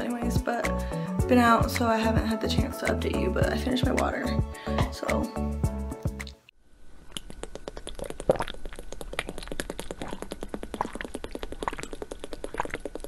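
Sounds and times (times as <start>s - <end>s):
water bubbling: 7.1s - 13.0s.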